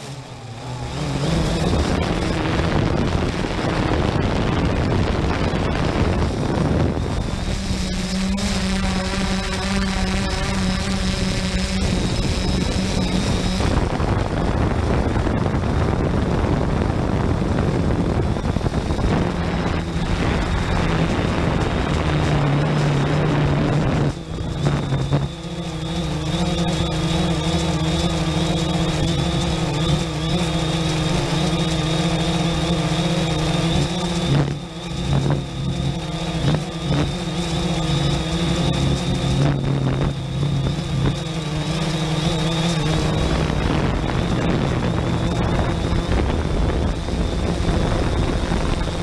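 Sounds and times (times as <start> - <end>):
drone propellers buzzing: 0.0 - 49.0
wind rushing: 0.4 - 26.1.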